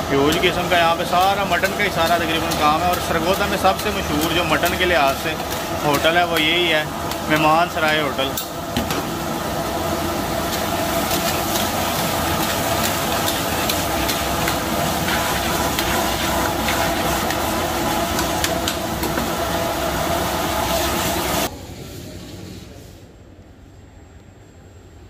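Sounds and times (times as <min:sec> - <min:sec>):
gas burner rushing: 0:00.0 - 0:21.5
meat sizzling: 0:09.0 - 0:21.5.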